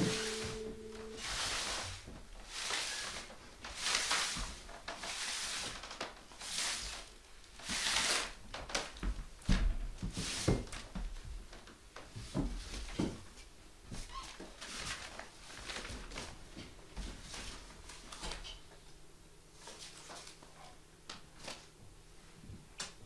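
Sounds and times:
paper sheets rustling underfoot: 14.4s - 18.5s, 19.6s - 20.5s, 21.4s - 21.7s.

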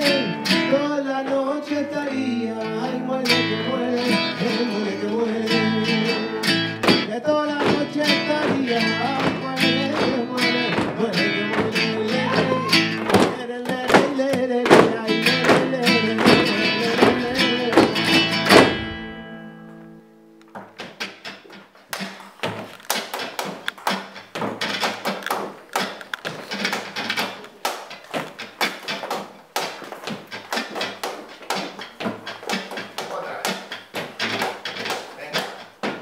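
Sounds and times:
flamenco guitar: 0.0s - 36.0s
percussive strikes: 6.4s - 19.3s, 20.6s - 36.0s.

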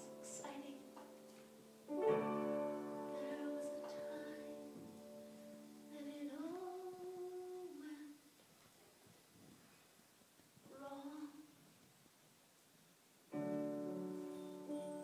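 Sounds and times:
keyboard sustained chords: 0.0s - 7.2s.

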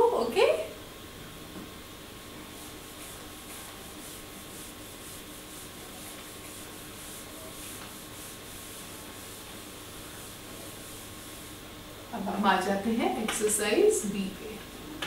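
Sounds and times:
duster rubbing on whiteboard: 2.4s - 11.6s.

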